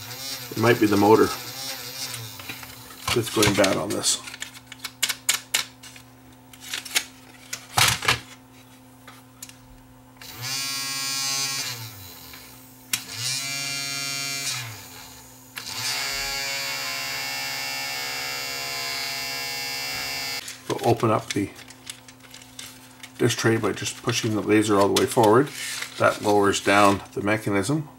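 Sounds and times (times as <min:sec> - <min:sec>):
disc motor whining: 0:00.0 - 0:03.9, 0:10.2 - 0:20.6.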